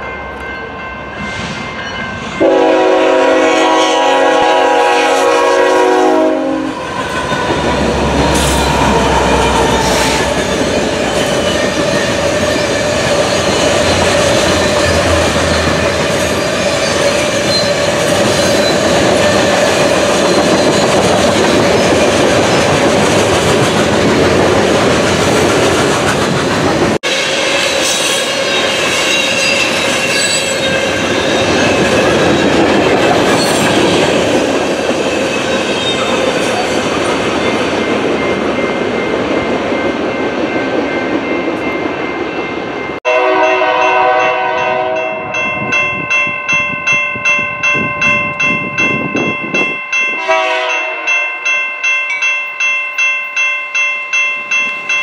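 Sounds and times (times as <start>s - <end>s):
train wheels rumbling: 0.0s - 51.6s
train air horn chord: 2.4s - 6.8s, 43.1s - 45.2s, 50.2s - 51.4s.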